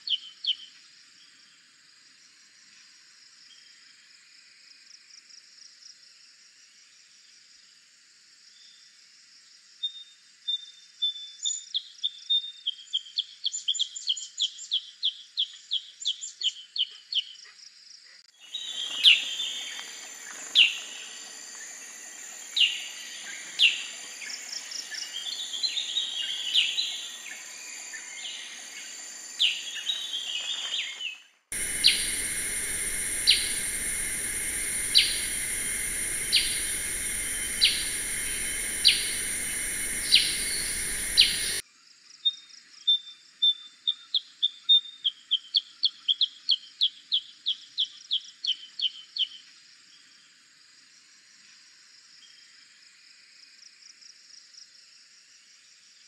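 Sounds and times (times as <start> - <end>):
steady high hiss: 18.4 - 30.9, 31.5 - 41.6
sharp bird calls: 18.4 - 41.6.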